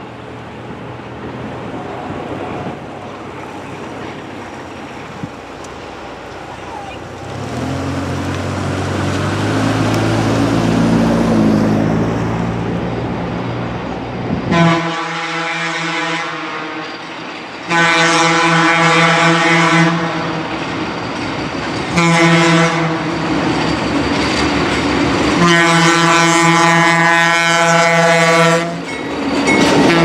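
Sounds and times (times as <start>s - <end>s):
truck engine pulling away: 0.0s - 14.3s
locomotive horn blasts: 14.5s - 17.0s, 17.7s - 20.6s, 21.9s - 23.3s, 25.4s - 28.9s, 29.8s - 30.0s.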